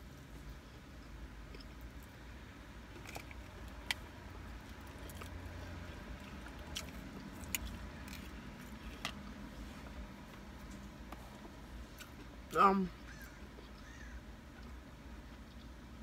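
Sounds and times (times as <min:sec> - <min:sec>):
person chewing fried chicken: 0:02.9 - 0:09.2.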